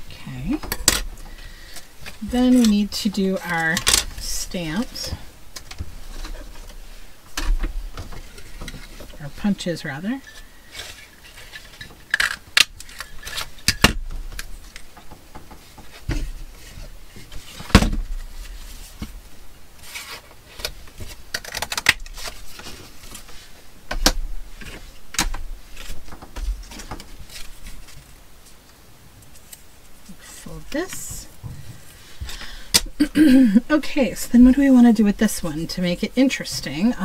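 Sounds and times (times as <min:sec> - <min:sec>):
paper rustling: 0:15.6 - 0:23.7.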